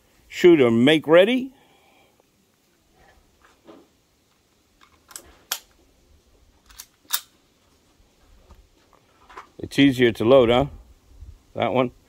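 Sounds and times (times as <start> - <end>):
pistol metallic clicks: 4.8 - 5.8, 6.6 - 7.4.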